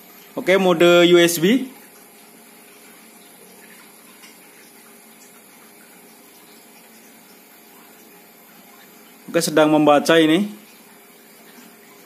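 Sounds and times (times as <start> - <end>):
speaker hiss: 0.4 - 1.8, 9.2 - 10.7.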